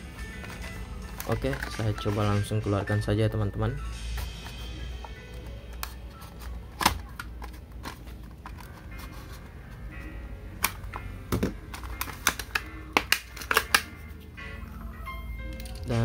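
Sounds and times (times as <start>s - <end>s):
plastic clicks and crackles: 0.4s - 2.2s, 10.6s - 13.9s.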